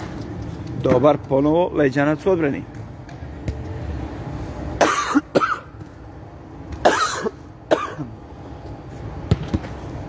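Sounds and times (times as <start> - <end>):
person coughing: 4.8 - 5.7, 6.8 - 8.2.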